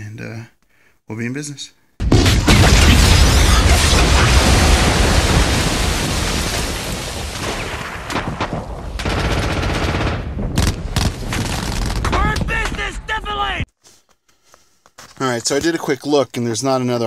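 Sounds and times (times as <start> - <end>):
explosion blasts: 2.0 - 13.6
machine-gun and rifle fire: 7.4 - 12.4.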